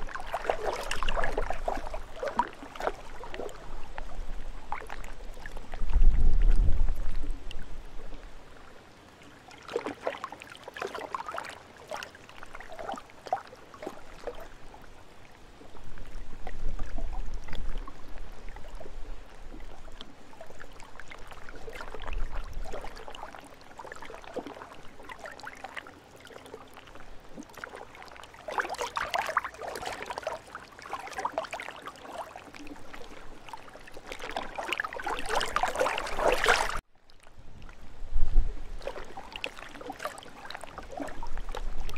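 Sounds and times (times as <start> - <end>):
lake waves lapping: 0.0 - 6.0, 8.0 - 37.9, 38.5 - 41.9
wind rumble on microphone: 0.0 - 8.6, 15.6 - 23.3, 35.2 - 39.4, 40.6 - 41.9.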